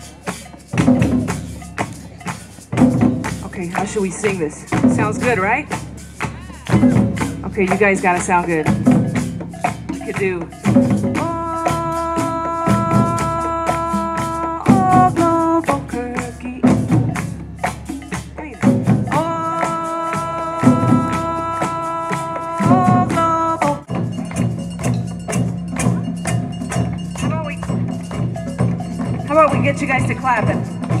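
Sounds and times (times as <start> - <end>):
cajon beat: 0.0 - 31.0
percussion piece with pulsing tone: 0.0 - 31.0
shakers: 0.0 - 31.0
long held sung notes: 19.1 - 23.9.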